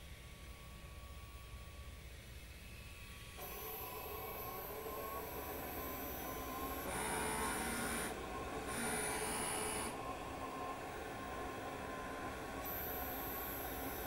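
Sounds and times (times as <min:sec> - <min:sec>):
printer cleaning motor: 0:03.3 - 0:14.0.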